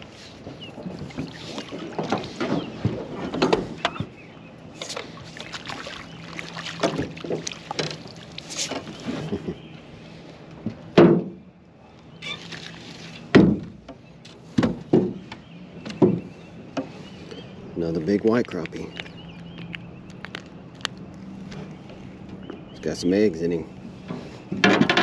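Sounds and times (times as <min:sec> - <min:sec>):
knocks against metal boat hull: 0:11.0 - 0:11.4, 0:13.3 - 0:14.0, 0:14.6 - 0:16.9.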